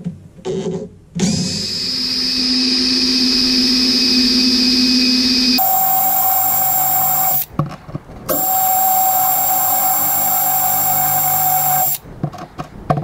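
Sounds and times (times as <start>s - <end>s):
cordless drill drilling into wood: 1.2s - 7.5s, 8.3s - 12.0s.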